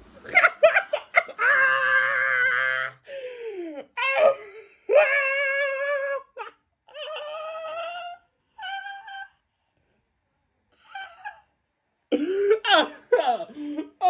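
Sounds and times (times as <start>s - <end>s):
man squealing laughter: 0.2s - 3.0s.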